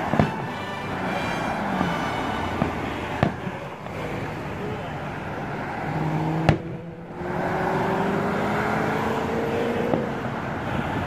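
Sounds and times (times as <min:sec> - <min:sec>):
firework bang: 0:00.0 - 0:00.6, 0:01.8 - 0:03.6
road traffic passing: 0:00.0 - 0:11.0
car engine accelerating: 0:01.0 - 0:10.4.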